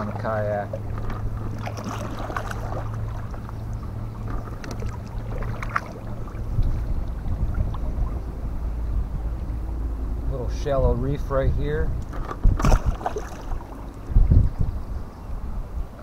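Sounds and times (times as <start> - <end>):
paddle splashes: 0.0 - 8.6, 12.1 - 14.2
wind rumble on microphone: 0.0 - 16.0.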